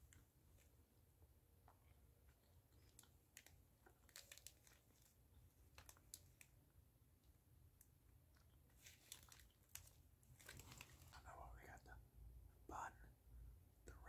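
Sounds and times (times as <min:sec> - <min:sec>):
plastic bag crinkling: 0:02.8 - 0:05.1, 0:05.7 - 0:06.5, 0:08.8 - 0:11.2.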